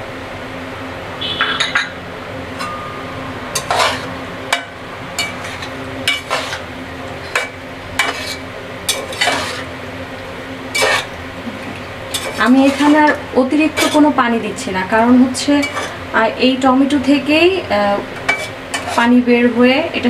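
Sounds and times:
steady low hum: 0:00.0 - 0:20.0
metal spatula scraping a pot: 0:03.5 - 0:09.7, 0:10.7 - 0:11.1, 0:12.1 - 0:14.2, 0:15.6 - 0:16.0, 0:18.2 - 0:19.2.

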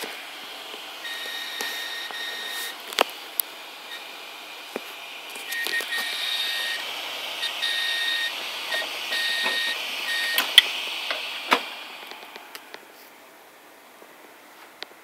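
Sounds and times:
high-pitched beeping tone: 0:01.0 - 0:02.8, 0:05.5 - 0:06.8, 0:07.4 - 0:10.6.

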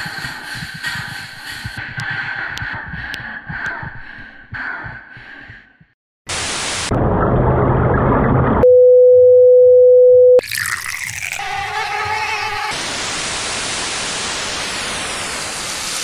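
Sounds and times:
static hiss: 0:12.8 - 0:16.0.

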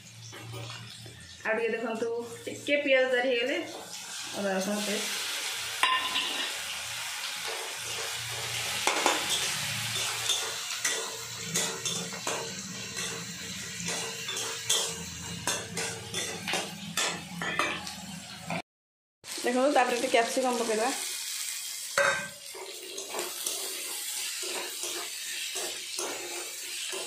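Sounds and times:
onions sizzling in oil: 0:00.0 - 0:18.6, 0:19.2 - 0:27.0
metal spatula scraping pan: 0:05.8 - 0:06.6, 0:07.4 - 0:18.1, 0:22.0 - 0:27.0.

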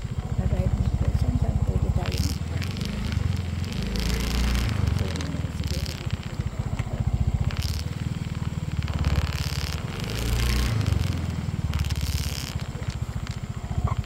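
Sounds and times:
vehicle engine running: 0:00.0 - 0:14.0
short bursts of hiss: 0:01.9 - 0:14.0.

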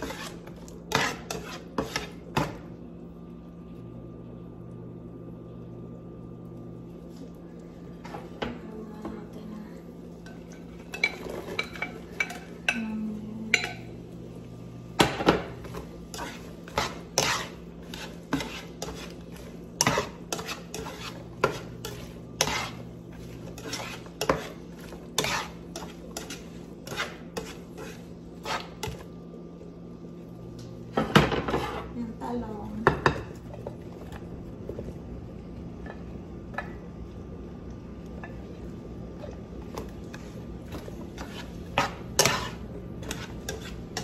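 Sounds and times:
spatula scraping a pan: 0:00.0 - 0:02.6, 0:15.3 - 0:29.1, 0:31.0 - 0:32.0, 0:39.7 - 0:44.0.

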